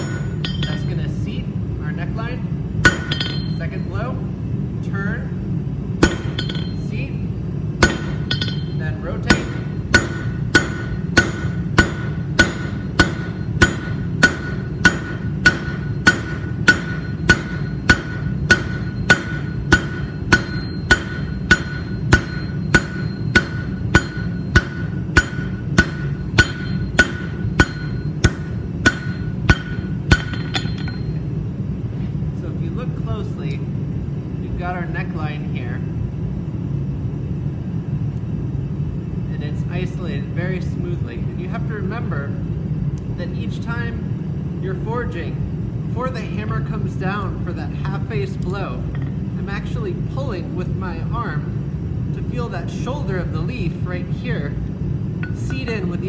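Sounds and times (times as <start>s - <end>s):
hammer striking hot steel on anvil: 0.0s - 1.0s, 2.8s - 3.7s, 6.0s - 7.1s, 7.8s - 31.3s, 55.2s - 55.9s
low hum: 0.0s - 56.0s.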